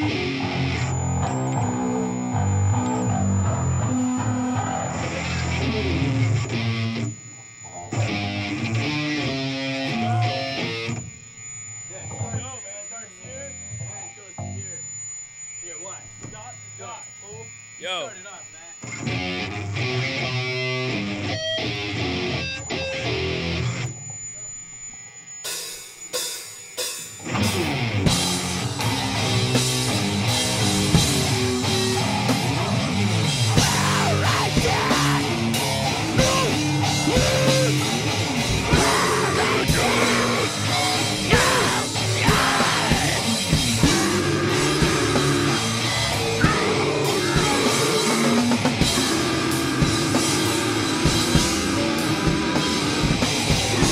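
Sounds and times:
electric guitar notes: 0.0 - 11.4, 18.9 - 24.2, 27.2 - 53.9
shouted vocals: 9.8 - 10.5, 33.5 - 45.8
live band playing: 27.4 - 39.0.

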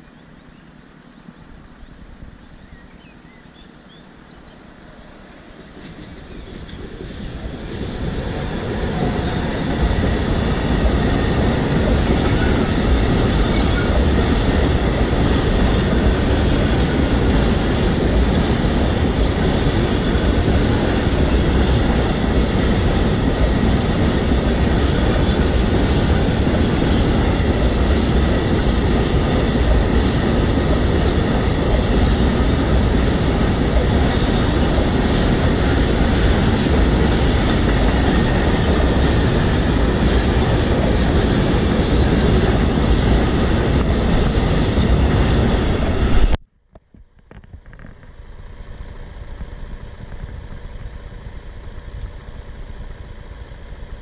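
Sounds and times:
freight train wheels rolling: 4.4 - 46.4.

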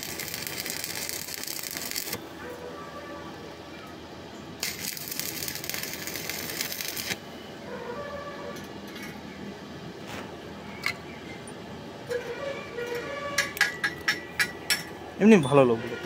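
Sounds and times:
welding arc crackling and hissing: 0.0 - 2.2, 4.6 - 7.2.

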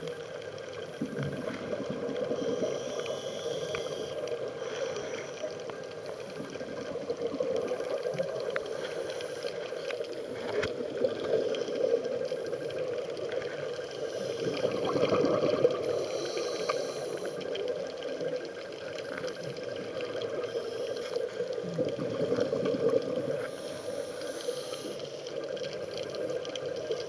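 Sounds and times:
steady underwater hum: 0.0 - 27.0
gurgling exhaled bubbles: 0.9 - 5.6, 9.6 - 20.6, 21.3 - 23.8
diver's regulator breathing: 2.2 - 6.6, 8.5 - 10.1, 14.0 - 17.6, 23.3 - 25.4.

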